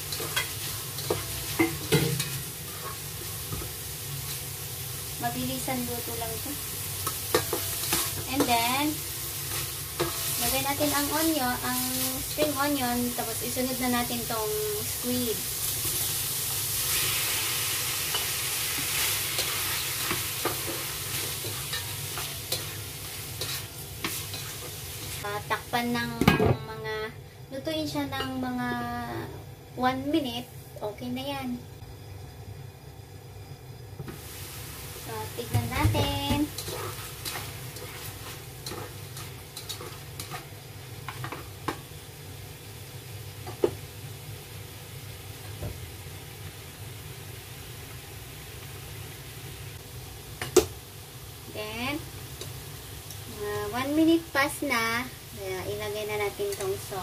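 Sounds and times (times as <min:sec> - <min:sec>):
spatula scraping a pan: 0:00.0 - 0:04.4, 0:18.1 - 0:25.2, 0:35.4 - 0:41.5
squid sizzling in a wok: 0:00.0 - 0:57.0.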